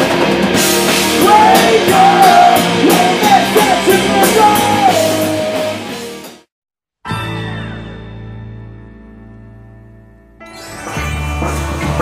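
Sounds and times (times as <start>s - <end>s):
drums: 0.0s - 6.5s, 10.5s - 12.0s
shouted vocals: 1.2s - 5.9s.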